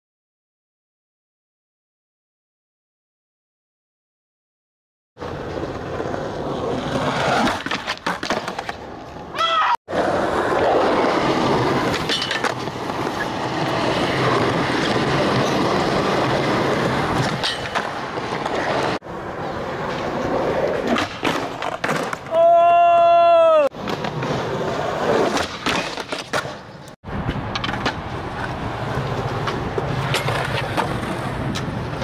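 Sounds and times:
skateboard wheels rolling on concrete: 5.2s - 32.0s
skateboard clacking on ground: 9.9s - 19.0s, 19.7s - 22.4s, 25.2s - 32.0s.

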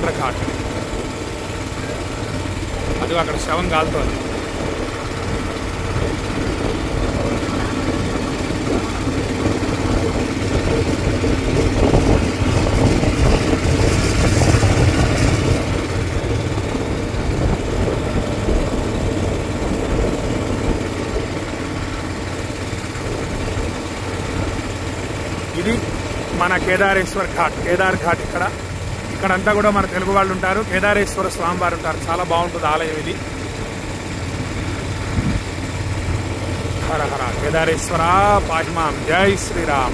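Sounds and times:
motorboat engine running: 0.0s - 39.9s.

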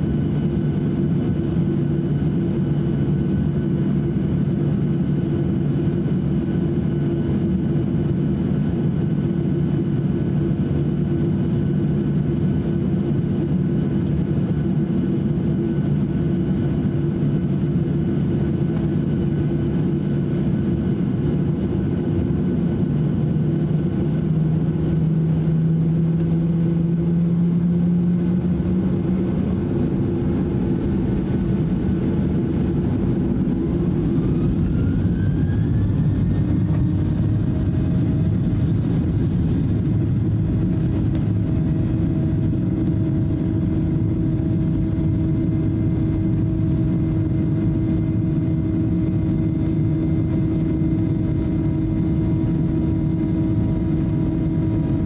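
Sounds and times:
jet engines heard from cabin: 0.0s - 55.0s.

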